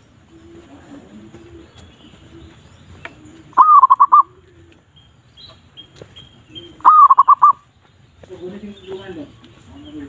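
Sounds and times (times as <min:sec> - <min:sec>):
dove song from speaker: 0:00.0 - 0:10.0
faint low cooing: 0:00.2 - 0:04.9.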